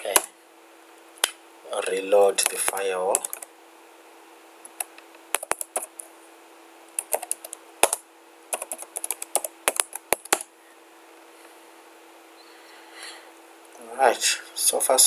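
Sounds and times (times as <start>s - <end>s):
faint steady hum: 0.0s - 15.0s
typing on a keyboard: 2.4s - 3.5s, 5.4s - 5.9s, 7.0s - 8.0s, 8.6s - 10.5s.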